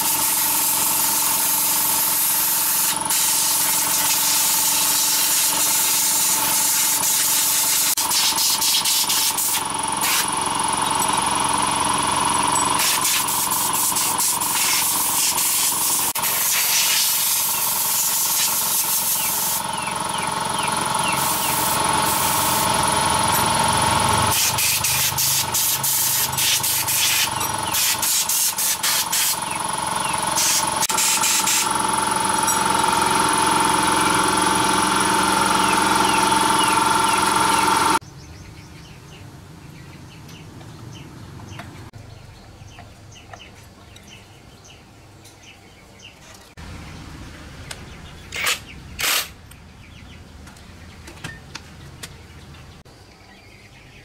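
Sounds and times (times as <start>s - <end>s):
air spray hissing: 0.0s - 10.2s, 12.8s - 19.6s, 21.2s - 22.7s, 24.3s - 29.4s, 30.4s - 31.7s
air compressor running: 0.0s - 38.0s, 48.3s - 49.4s.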